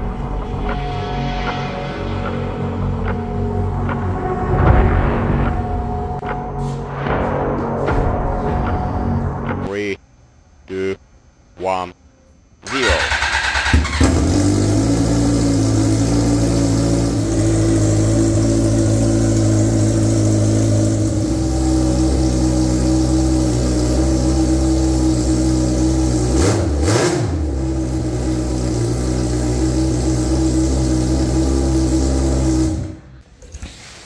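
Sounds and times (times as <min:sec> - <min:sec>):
engine idling: 0:12.7 - 0:33.1.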